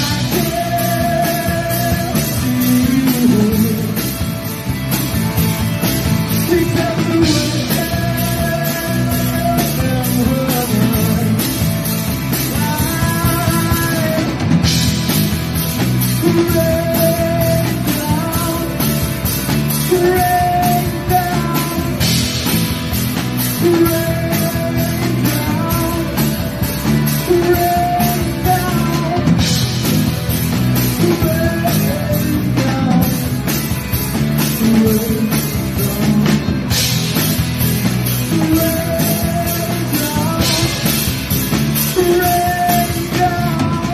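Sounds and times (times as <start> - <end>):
live rock band playing: 0.0 - 43.9.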